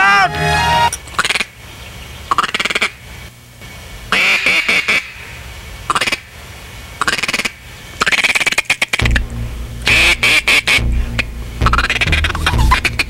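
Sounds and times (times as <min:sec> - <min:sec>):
ducks quacking: 0:00.0 - 0:01.6, 0:02.3 - 0:03.0, 0:04.1 - 0:06.3, 0:07.0 - 0:13.0.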